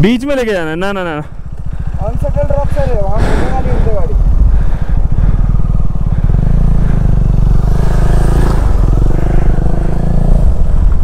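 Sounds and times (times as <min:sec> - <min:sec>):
motorcycle engine running at low revs: 0:00.0 - 0:11.0.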